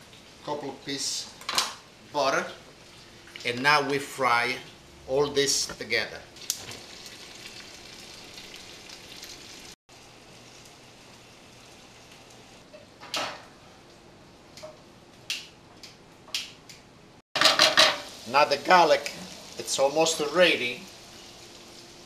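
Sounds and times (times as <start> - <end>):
garlic sizzling in a pan: 6.4 - 12.6, 17.4 - 22.0.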